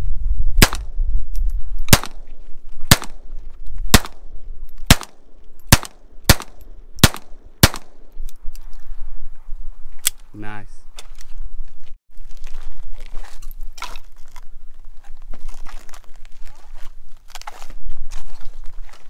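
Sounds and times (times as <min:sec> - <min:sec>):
pistol shots: 0:01.9 - 0:02.2, 0:02.9 - 0:03.2, 0:03.9 - 0:04.3, 0:04.9 - 0:08.0.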